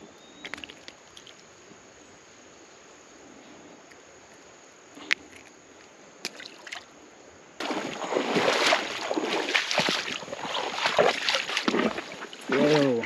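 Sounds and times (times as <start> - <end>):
shallow water splashing: 7.6 - 13.0.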